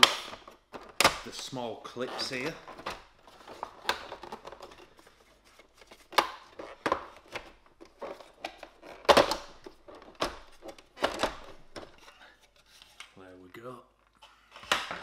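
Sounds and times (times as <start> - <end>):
plastic clips snapping loose: 0.0 - 1.3.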